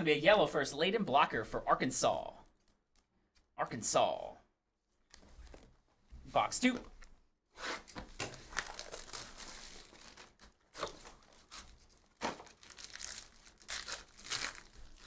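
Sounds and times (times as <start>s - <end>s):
foil packs rustling: 8.1s - 15.0s
pack wrapper tearing: 8.2s - 15.0s.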